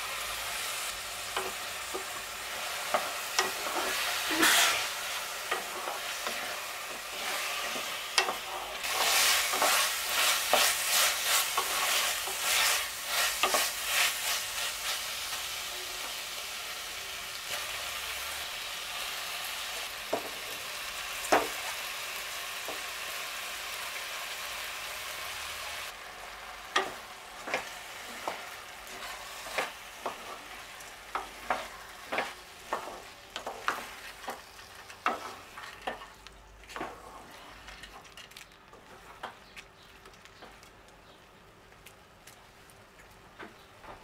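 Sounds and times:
food sizzling in a pot: 0.0 - 36.2
utensil scraping a pot: 2.9 - 14.9.

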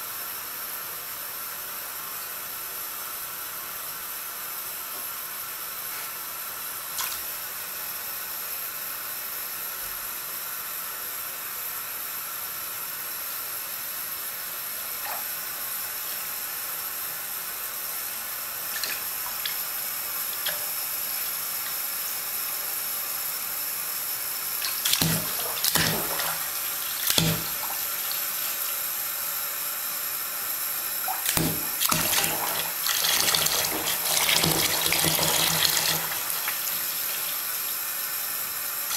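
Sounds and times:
cat pawing water splashes: 24.6 - 28.4, 31.0 - 37.2
tap running into bath water: 24.6 - 28.6, 31.0 - 37.5.

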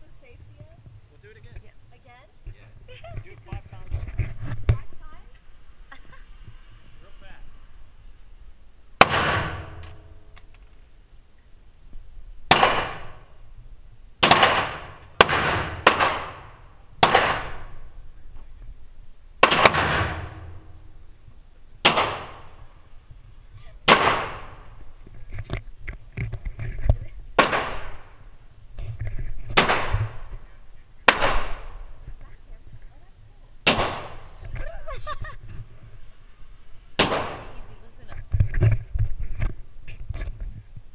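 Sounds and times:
rifle shots echoing indoors: 19.4 - 20.7.

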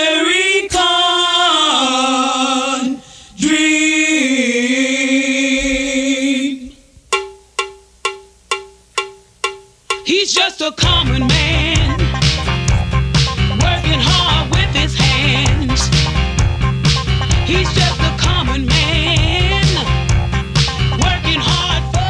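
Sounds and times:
choir singing held chords: 0.0 - 6.8, 10.0 - 22.0
struck ringing notes: 7.1 - 10.2, 10.8 - 21.7.

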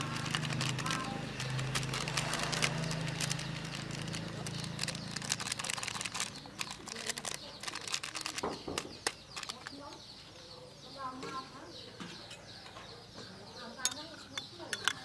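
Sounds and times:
plastic packet crinkling: 0.0 - 9.8.

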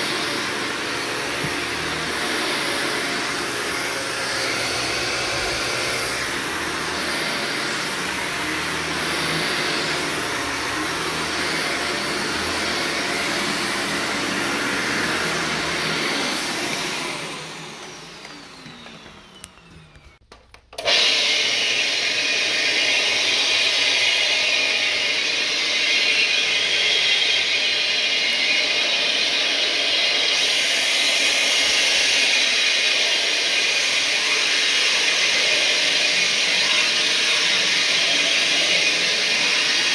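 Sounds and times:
carpet cleaning machine whirring: 0.0 - 39.9
vacuum cleaner running: 0.0 - 39.9
motor winding down: 0.1 - 20.2.

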